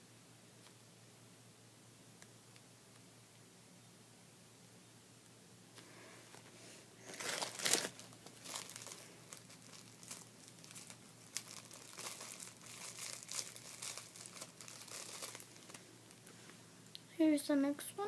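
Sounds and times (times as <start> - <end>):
plastic wrapper crinkling: 7.0 - 16.3.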